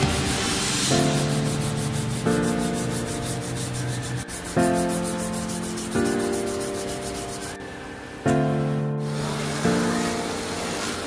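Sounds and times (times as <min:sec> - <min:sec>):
sandpaper rubbing on blade: 0:00.0 - 0:07.6
background music with chords: 0:00.0 - 0:11.0.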